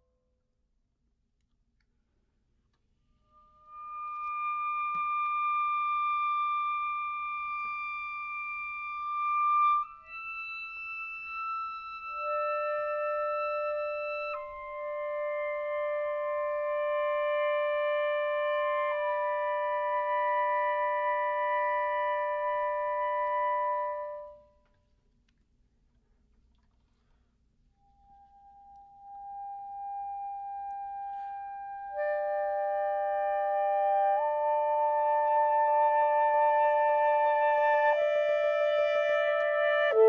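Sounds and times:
saxophone quartet playing: 0:31.0 - 0:40.0.

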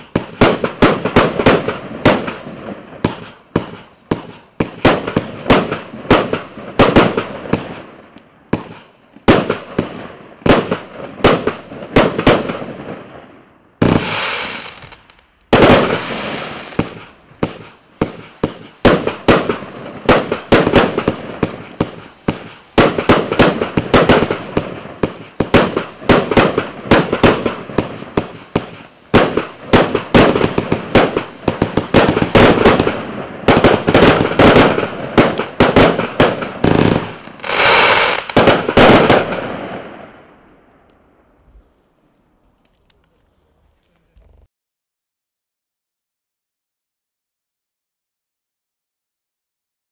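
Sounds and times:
fireworks bangs: 0:00.0 - 0:41.0
fireworks hissing: 0:13.8 - 0:39.4.

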